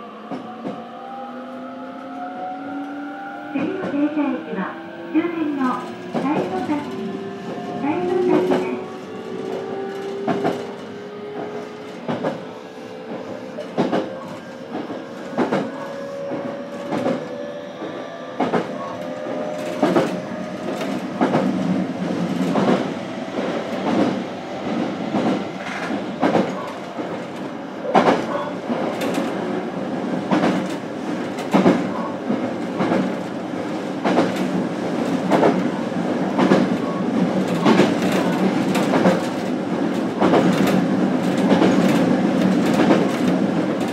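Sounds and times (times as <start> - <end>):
wheels clicking over rail joints: 5.8 - 12.4.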